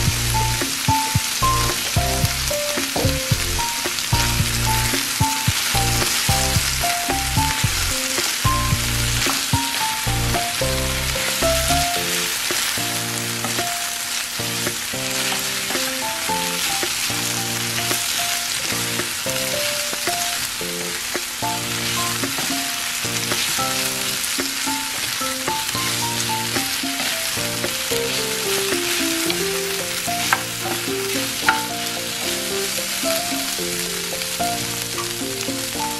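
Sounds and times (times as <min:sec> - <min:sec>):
background music: 0:00.0 - 0:35.9
meat sizzling in a frying pan: 0:00.0 - 0:35.9
wooden utensils stirring: 0:17.8 - 0:35.9.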